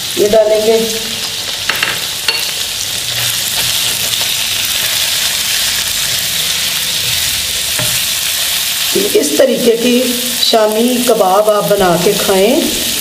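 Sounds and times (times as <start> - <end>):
chicken sizzling in oil: 0.0 - 13.0.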